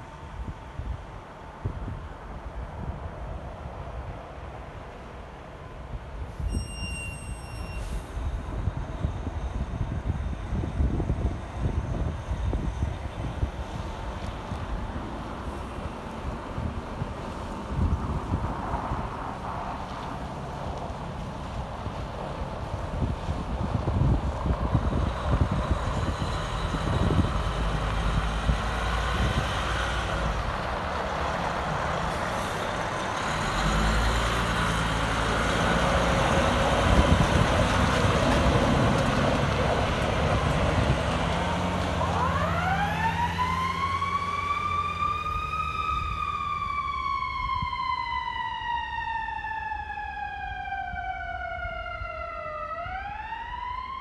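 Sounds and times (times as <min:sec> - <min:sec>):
fire truck diesel engine rumbling: 0:07.3 - 0:54.0
fire truck siren: 0:23.0 - 0:54.0.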